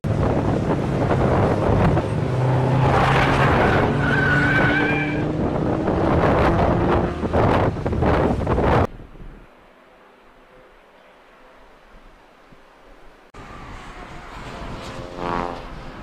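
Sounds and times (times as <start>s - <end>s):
race car engines: 0.0s - 11.9s, 13.2s - 16.0s
tyre squeal: 3.4s - 5.3s.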